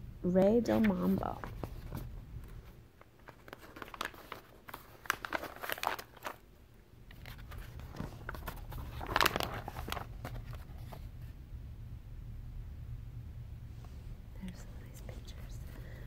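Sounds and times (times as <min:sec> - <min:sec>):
paper rustling: 0:00.5 - 0:06.4, 0:07.1 - 0:11.1.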